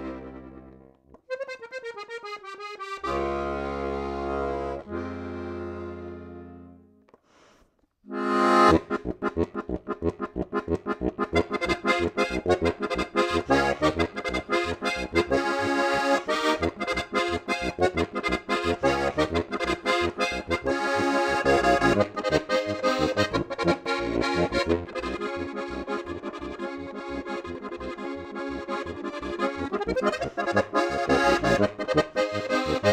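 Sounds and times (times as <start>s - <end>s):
button accordion playing lively tune: 0.0s - 6.8s, 8.1s - 32.9s.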